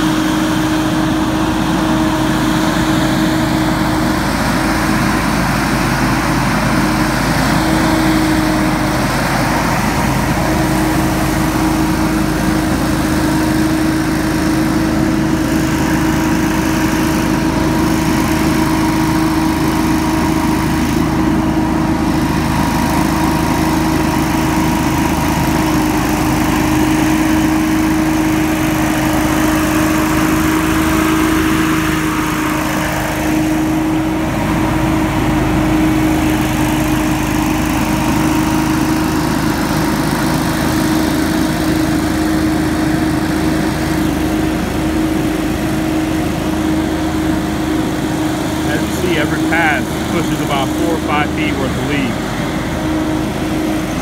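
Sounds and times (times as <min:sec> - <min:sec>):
leaf blower droning: 0:00.0 - 0:54.0.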